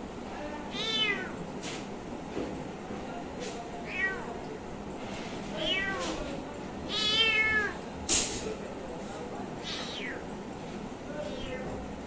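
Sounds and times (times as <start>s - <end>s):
kitten meowing: 0.7s - 1.4s, 3.8s - 4.3s, 5.6s - 6.2s, 6.9s - 7.8s, 9.6s - 10.3s, 11.3s - 11.8s.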